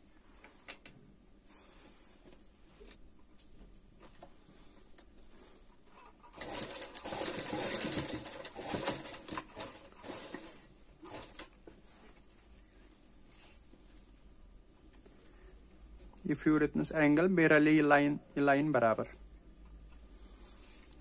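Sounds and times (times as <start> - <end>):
sewing machine stitching: 6.3 - 11.5.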